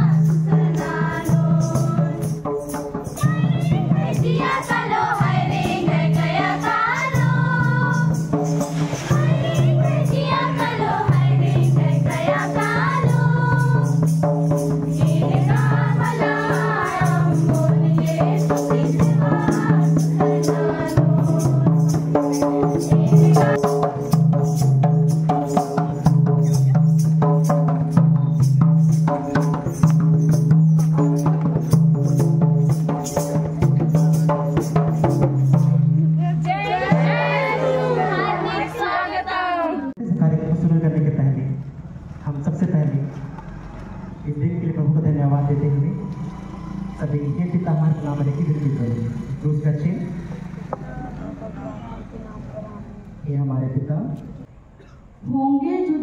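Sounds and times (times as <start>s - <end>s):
voices singing: 0.0s - 23.8s, 32.8s - 40.0s
rattling high percussion beat: 0.0s - 38.1s.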